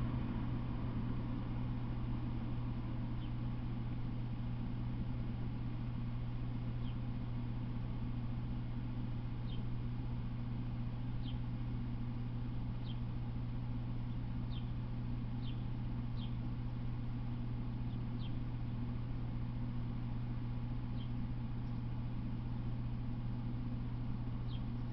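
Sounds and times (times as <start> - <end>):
steady low hum: 0.0 - 24.9
bird chirping: 11.2 - 11.4, 14.5 - 14.7, 15.4 - 16.4, 17.9 - 18.4, 20.9 - 21.8, 24.4 - 24.9.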